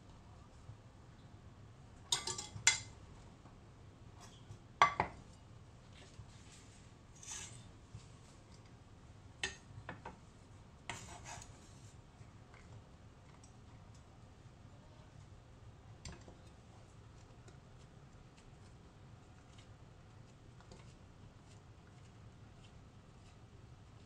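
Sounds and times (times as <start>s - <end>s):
cleaver scraping wooden board: 10.9s - 11.8s.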